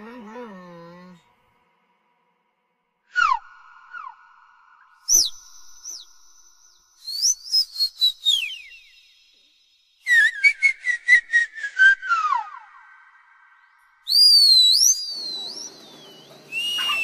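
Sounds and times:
high whistling: 3.1 - 17.0
whistled chirps: 3.1 - 17.0.

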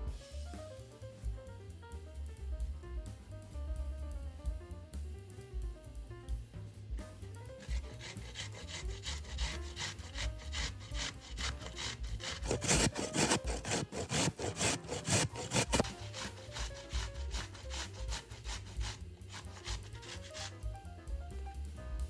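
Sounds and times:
background music: 0.0 - 22.0
rhythmic scraping strokes: 7.0 - 20.8.

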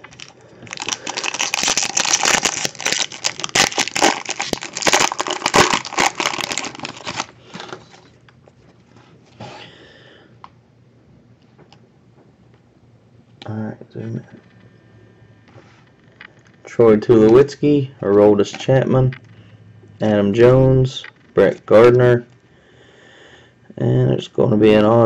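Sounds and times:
foil wrapper crinkling: 0.0 - 8.2.

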